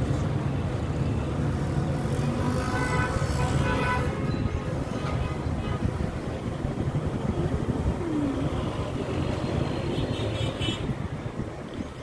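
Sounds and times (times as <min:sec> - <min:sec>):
traffic engine and road rumble: 0:00.0 - 0:12.0.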